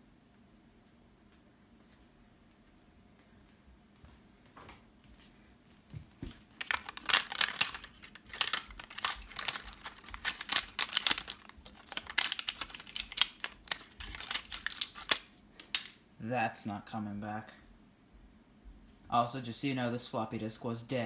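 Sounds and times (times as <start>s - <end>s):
plastic film crinkling: 6.2s - 15.4s.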